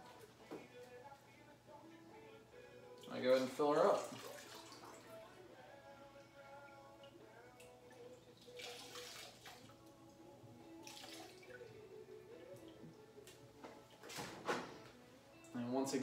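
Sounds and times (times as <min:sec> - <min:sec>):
soft background music: 0:00.0 - 0:16.0
water pouring from jug: 0:03.4 - 0:05.2, 0:08.4 - 0:09.7.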